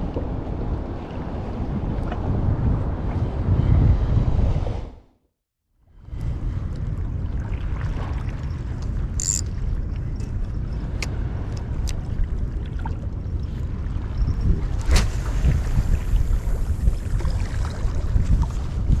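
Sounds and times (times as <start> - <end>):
wind rumbling on microphone: 0.0 - 5.2, 5.8 - 19.0.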